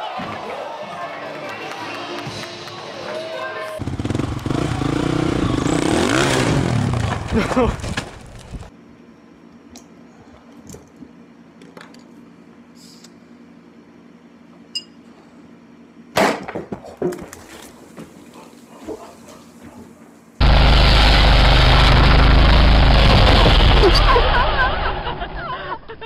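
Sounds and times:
loud steady noise: 3.8s - 7.7s, 20.4s - 25.5s.

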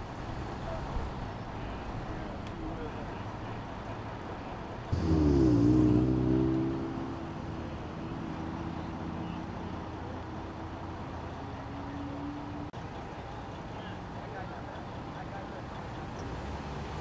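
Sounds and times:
street traffic: 0.0s - 17.0s
heavy vehicle engine starting: 5.0s - 6.6s.

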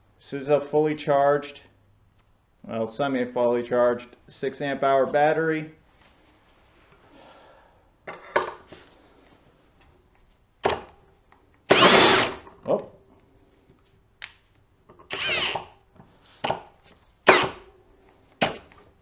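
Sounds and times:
cordless drill driving screw: 11.7s - 12.4s, 15.1s - 15.7s.

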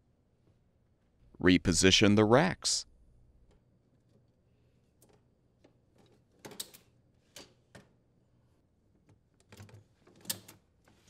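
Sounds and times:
wooden racks clicking and knocking: 3.4s - 8.0s.

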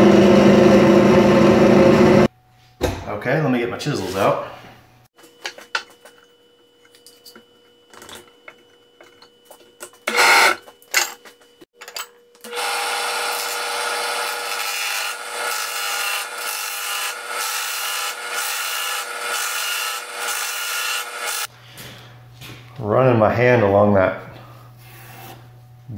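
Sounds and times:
drill press motor hum: 10.0s - 10.6s, 12.4s - 21.5s
tools clattering: 10.6s - 12.3s.

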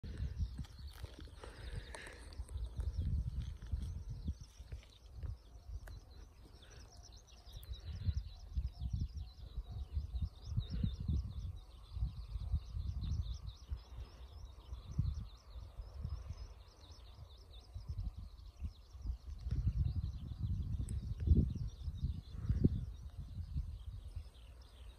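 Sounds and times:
wind buffeting microphone: 0.0s - 24.9s.

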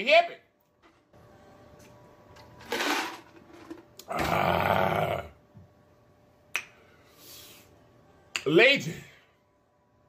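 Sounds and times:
man rough vocal sound: 4.1s - 5.4s.

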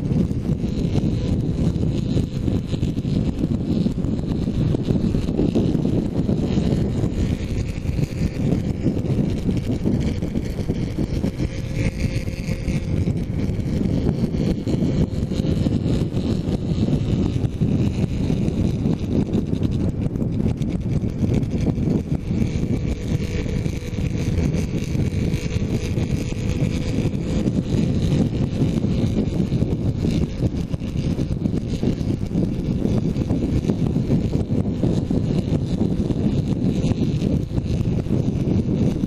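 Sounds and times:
motorcycle engine: 0.0s - 39.0s
wind buffeting microphone: 0.0s - 39.0s.

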